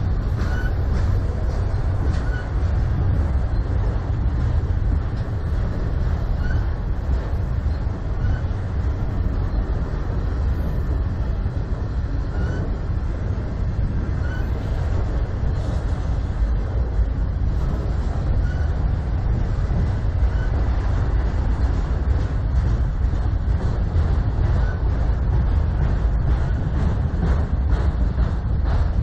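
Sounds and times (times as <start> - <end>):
train wheels rolling on rails: 0.0 - 29.0.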